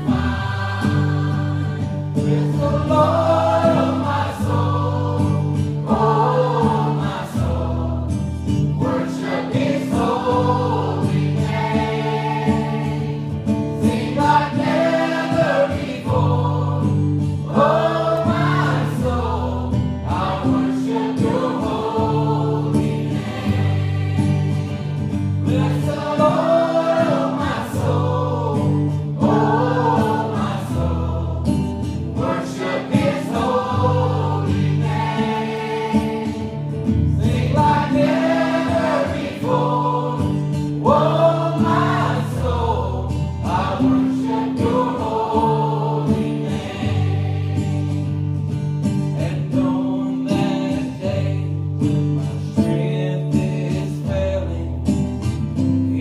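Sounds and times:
choir singing: 0.0s - 52.6s
acoustic guitar: 0.0s - 56.0s
man singing lead: 52.2s - 54.8s.

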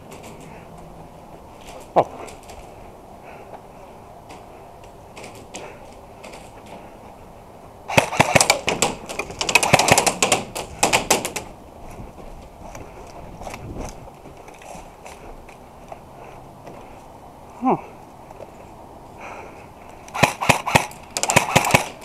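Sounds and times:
airsoft guns firing: 7.9s - 11.4s, 20.1s - 22.0s.

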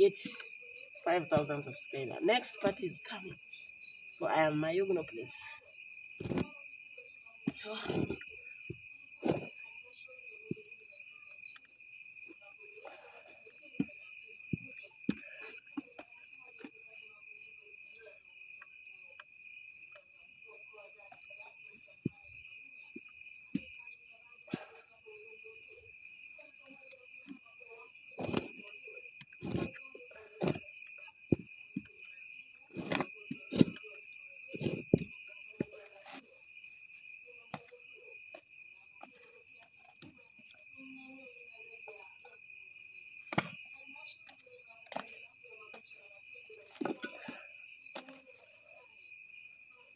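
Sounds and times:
crickets chirping: 0.0s - 49.9s
wooden stick scraping metal pot: 29.3s - 30.6s, 32.7s - 33.8s, 34.5s - 35.0s.

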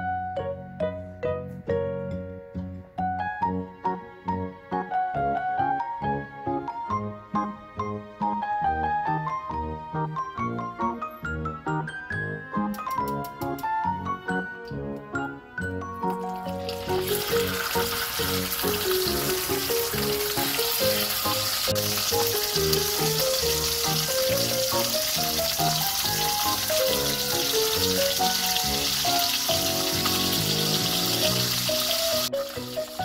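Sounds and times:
background music with a beat: 11.5s - 15.2s
fish sizzling in hot oil: 16.1s - 33.0s.

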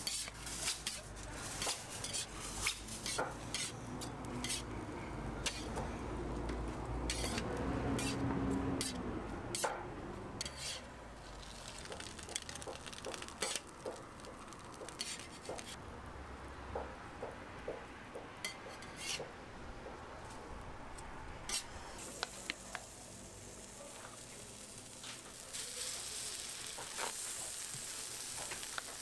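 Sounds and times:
tongs and spatula scraping griddle: 0.0s - 4.8s, 5.4s - 5.8s, 7.1s - 9.8s, 10.4s - 15.8s, 18.4s - 19.3s, 21.5s - 23.0s, 23.6s - 29.0s
faint sizzle: 10.7s - 16.1s, 21.8s - 29.0s.

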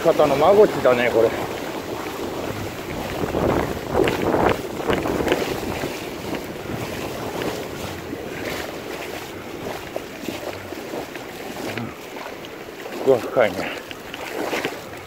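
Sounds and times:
surf washing in shallows: 0.0s - 15.0s
wind buffeting microphone: 0.0s - 15.0s.

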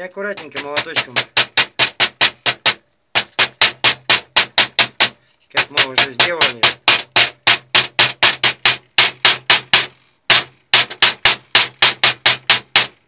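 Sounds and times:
small hammer tapping metal tube: 0.1s - 13.0s.

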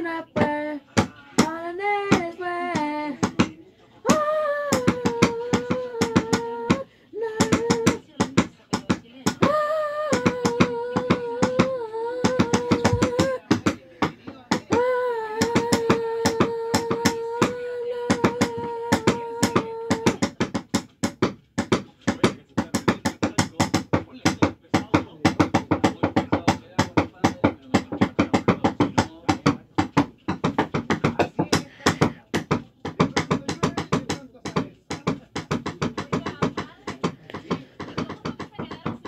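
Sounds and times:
person singing long notes: 4.0s - 8.1s, 9.4s - 13.6s, 14.7s - 20.3s.

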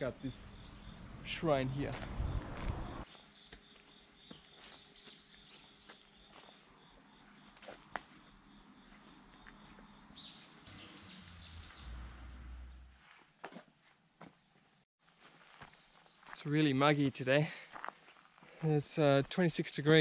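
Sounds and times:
high insect song: 0.0s - 20.0s
low rumble: 1.1s - 3.0s.

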